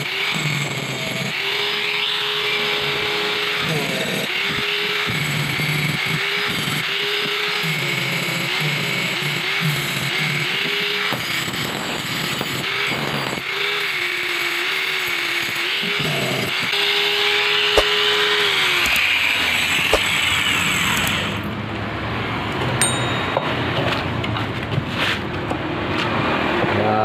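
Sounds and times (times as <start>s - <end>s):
angle grinder grinding metal: 0.0s - 21.5s
short high ding: 22.8s - 24.1s.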